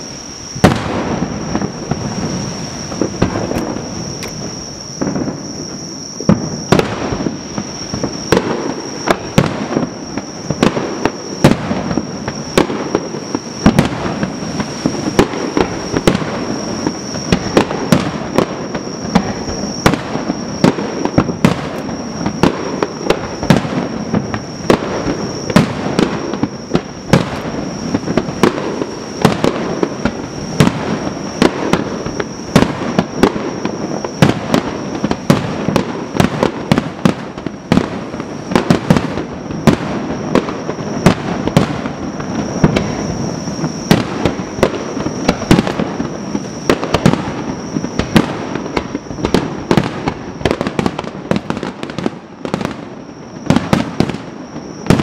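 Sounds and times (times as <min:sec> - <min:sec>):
fireworks bursting: 0:00.0 - 0:55.0
steady high-pitched tone: 0:01.2 - 0:35.0.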